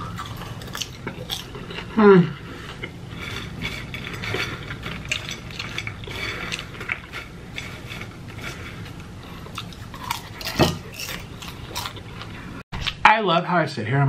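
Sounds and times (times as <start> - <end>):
hands rustling popcorn: 3.1 - 12.4.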